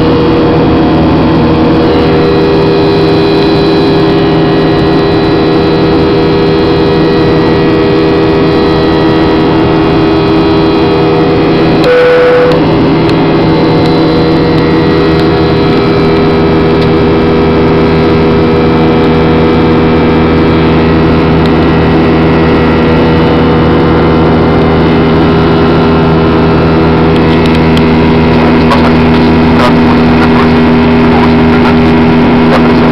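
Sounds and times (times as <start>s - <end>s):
jet engine drone in cabin: 0.0s - 32.9s
brief cabin tone: 11.8s - 12.7s.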